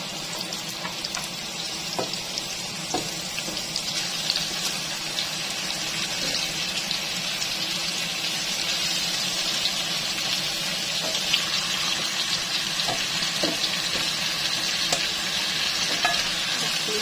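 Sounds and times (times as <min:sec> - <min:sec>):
chicken sizzling in hot oil: 0:00.0 - 0:17.0.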